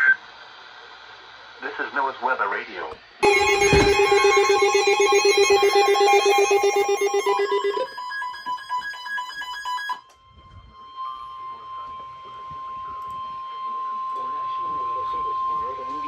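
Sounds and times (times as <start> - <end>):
fast-pulsing alarm: 3.2 - 16.0
steady high alarm tone: 3.2 - 16.0.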